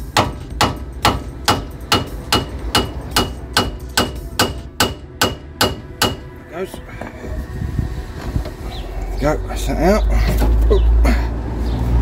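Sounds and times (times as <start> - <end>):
hammer striking steel: 0.0 - 6.4.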